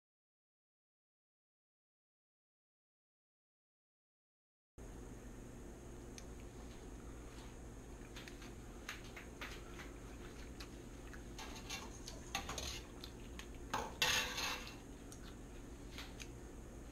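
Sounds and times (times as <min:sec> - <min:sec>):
fork clinking and scraping on plate: 0:11.4 - 0:13.0, 0:13.8 - 0:14.8.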